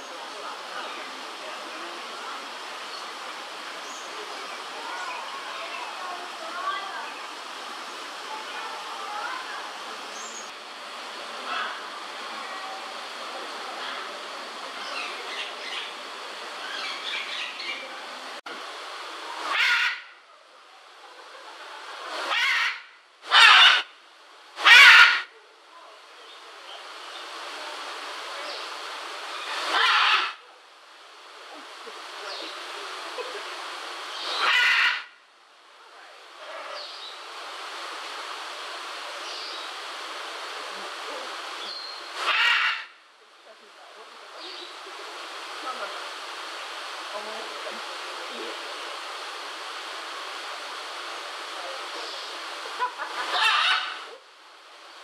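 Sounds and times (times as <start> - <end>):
steady hiss: 0.0 - 55.0
macaw squawk: 19.5 - 20.1, 22.3 - 23.9, 24.6 - 25.3, 29.4 - 30.4, 34.3 - 35.1, 42.2 - 42.9, 52.8 - 54.1.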